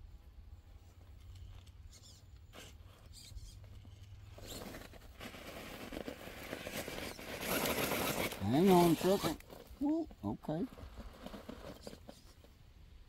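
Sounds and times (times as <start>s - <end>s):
tyres crunching over rock: 2.6s - 12.3s.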